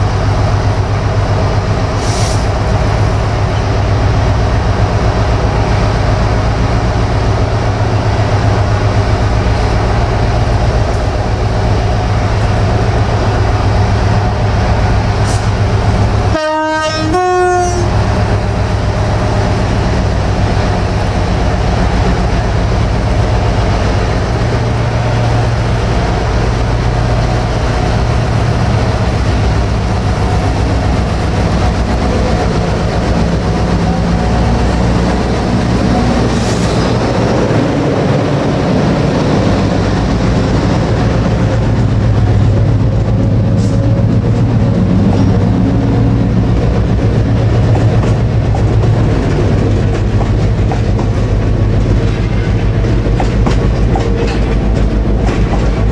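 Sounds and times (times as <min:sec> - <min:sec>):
diesel locomotive engine running: 0:00.0 - 0:55.9
train wagons rolling on rails: 0:00.0 - 0:55.9.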